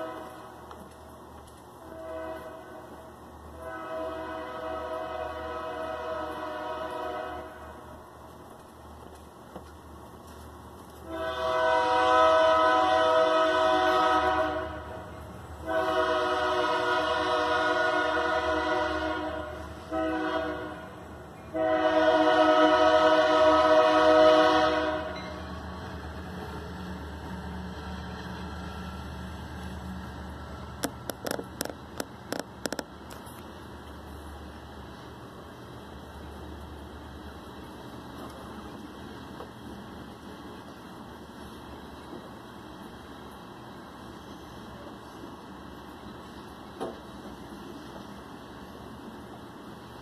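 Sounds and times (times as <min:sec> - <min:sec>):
locomotive air horn blasts: 0:00.0 - 0:00.6, 0:01.8 - 0:08.0, 0:11.0 - 0:26.0
passing train rumbling: 0:00.0 - 0:50.0.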